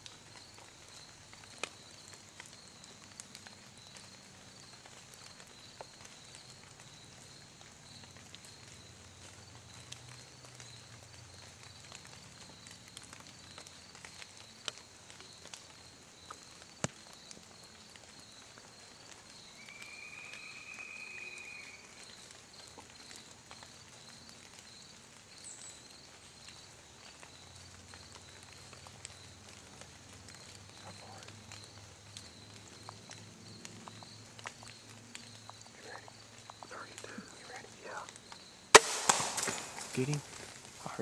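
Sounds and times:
crackles in leaf litter: 0.0s - 41.0s
insect chirping: 0.0s - 41.0s
sharp snap: 38.8s - 40.2s.

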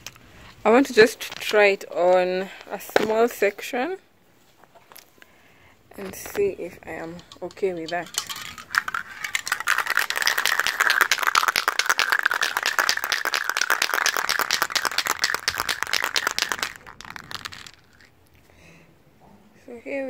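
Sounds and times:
spray can rattling when shaken: 6.1s - 18.1s.

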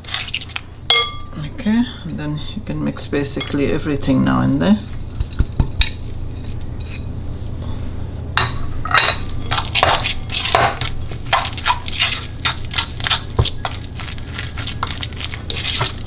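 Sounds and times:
fork scraping glass bowl: 9.4s - 16.0s.

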